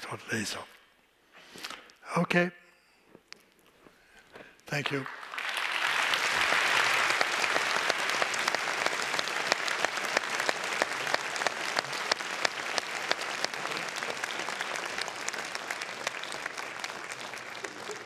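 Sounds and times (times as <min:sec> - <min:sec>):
audience applauding: 0:04.8 - 0:18.0.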